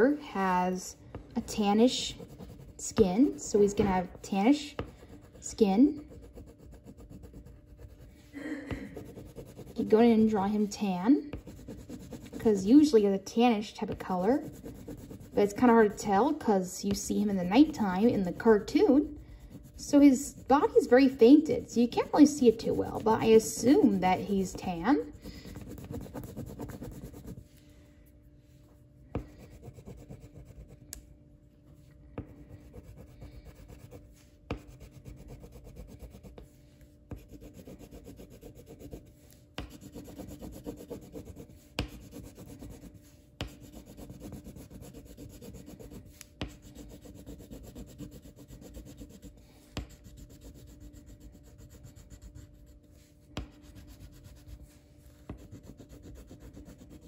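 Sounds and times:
drawing tool scribbling on paper: 0:01.5 - 0:08.3, 0:09.0 - 0:10.2, 0:11.4 - 0:12.7, 0:14.0 - 0:16.4, 0:17.2 - 0:27.4, 0:32.3 - 0:36.4, 0:37.2 - 0:52.8, 0:53.4 - 0:57.0.

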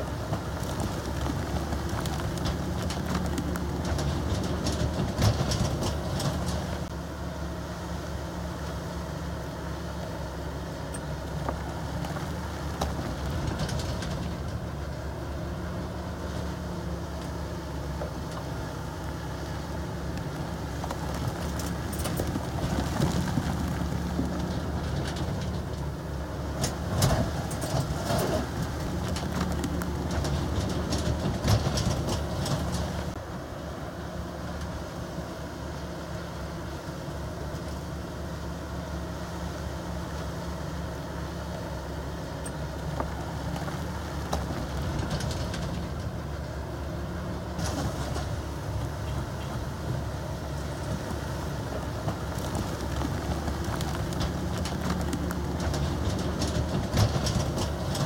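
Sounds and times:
bulldozer diesel engine running: 0:00.0 - 0:58.0
metallic clanks and rattles: 0:00.8 - 0:06.9, 0:21.0 - 0:33.2, 0:52.1 - 0:58.0.

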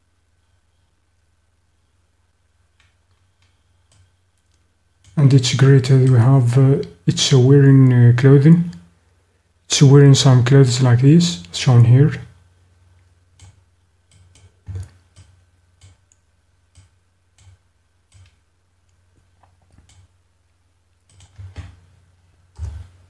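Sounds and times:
faint low hum: 0:00.0 - 0:23.0
computer mouse clicks: 0:02.8 - 0:05.2, 0:13.4 - 0:19.0, 0:19.7 - 0:20.1, 0:21.0 - 0:21.8.

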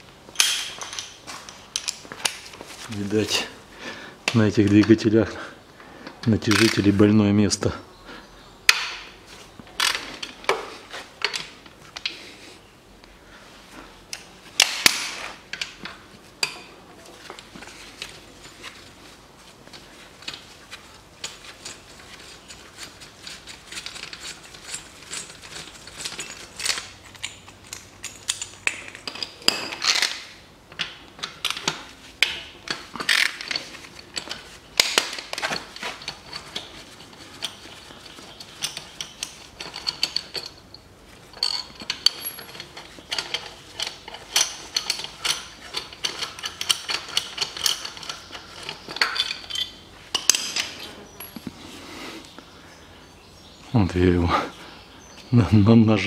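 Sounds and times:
metal clinks of tools: 0:30.8 - 0:51.4.

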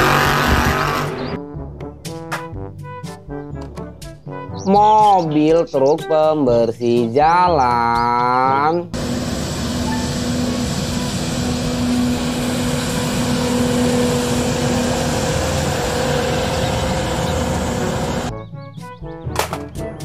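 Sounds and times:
street sweeper engine and fan: 0:08.9 - 0:18.3.

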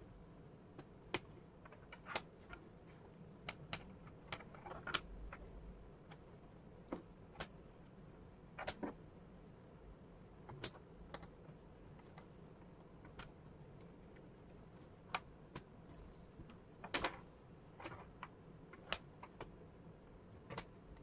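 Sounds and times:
wooden puzzle pieces clicking: 0:17.8 - 0:19.5.

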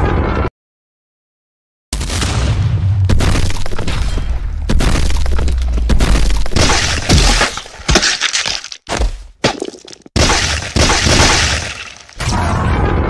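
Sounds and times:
crashing and smashing: 0:03.2 - 0:12.3.

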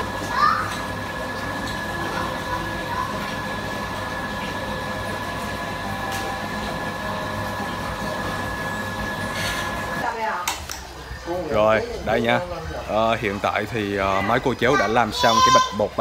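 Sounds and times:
electric fan motor hum: 0:00.0 - 0:10.2
high whine: 0:03.5 - 0:10.0.

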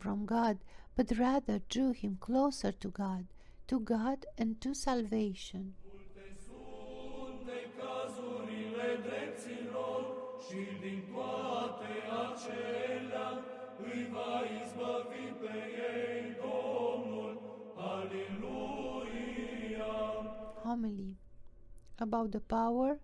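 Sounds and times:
slow sung chant: 0:05.8 - 0:20.7.

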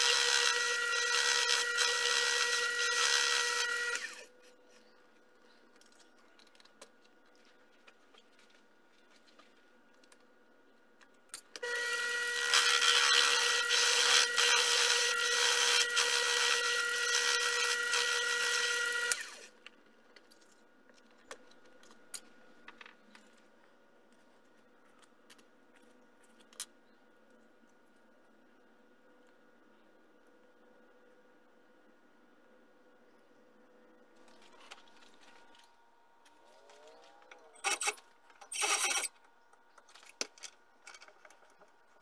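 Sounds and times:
metal lathe whining: 0:11.6 - 0:19.4.

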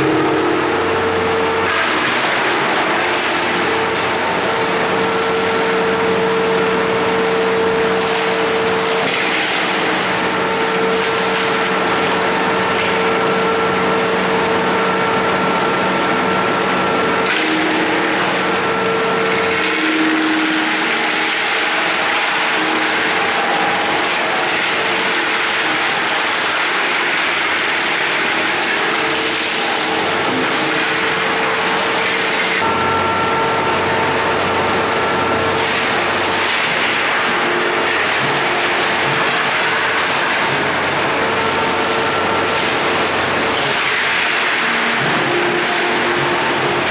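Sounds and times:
wood chipper humming: 0:00.0 - 0:46.9
wooden boards being chipped: 0:01.6 - 0:13.1, 0:17.2 - 0:32.7, 0:35.6 - 0:41.8, 0:42.4 - 0:46.9.

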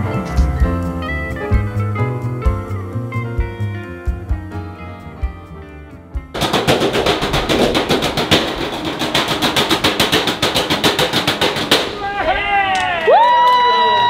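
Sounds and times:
drumsticks beating on metal trash cans: 0:06.4 - 0:12.1.

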